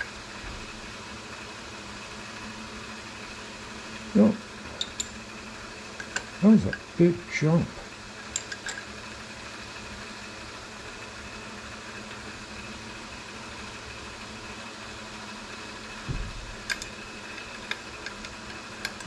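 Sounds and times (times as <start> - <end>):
lathe drive humming: 0.0 - 19.0
low thump: 16.1 - 16.5.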